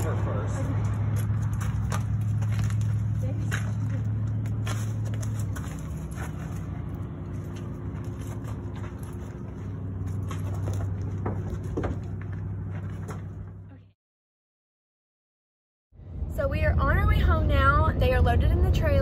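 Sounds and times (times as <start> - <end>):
vehicle engine idling: 0.0 - 13.9.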